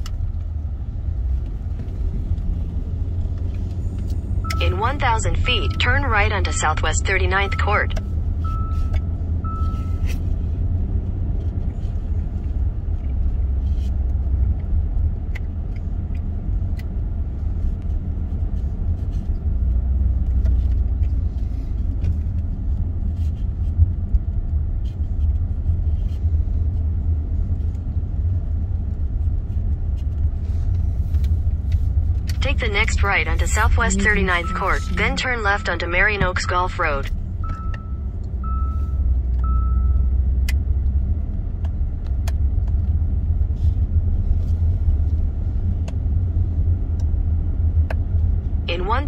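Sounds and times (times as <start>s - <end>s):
car driving rumble: 0.0s - 49.0s
short beeps: 4.4s - 10.1s, 32.5s - 40.2s.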